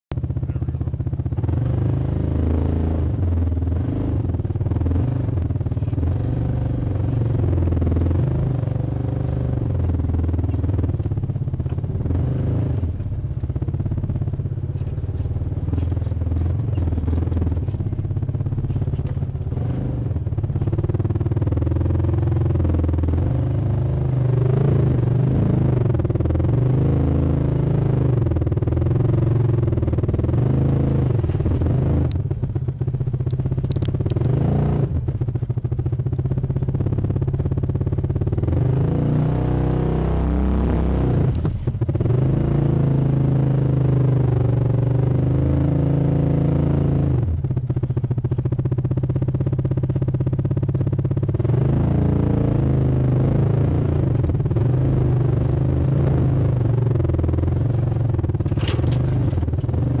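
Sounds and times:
vehicle rattling: 0.1s - 39.8s, 40.5s - 43.5s, 53.4s - 60.0s
off-road vehicle engine running: 0.1s - 60.0s
sharp knocks or scrapes: 58.5s - 59.7s.

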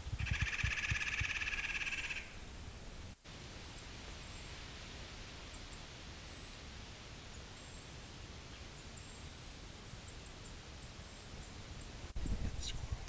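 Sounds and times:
wind buffeting microphone: 0.0s - 1.6s, 12.2s - 13.0s.

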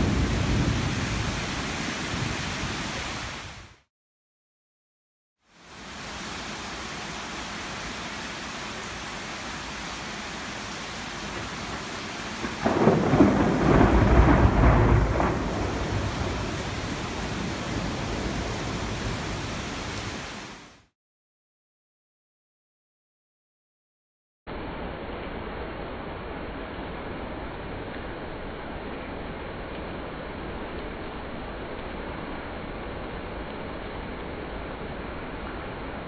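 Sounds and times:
thunder crack and rumble: 0.0s - 2.4s, 11.3s - 19.2s
steady rain falling: 0.0s - 3.9s, 5.4s - 20.9s, 24.5s - 36.0s.

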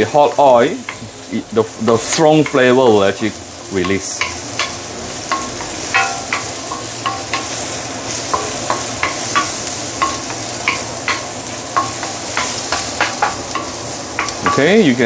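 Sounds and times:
food sizzling in hot oil: 0.0s - 15.0s
wooden spatula tapping a wok: 2.4s - 2.8s, 3.8s - 14.8s.

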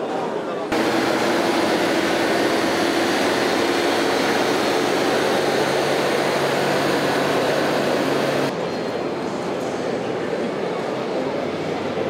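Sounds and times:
loud mechanical drone: 0.7s - 8.5s
low hum: 0.7s - 8.5s.

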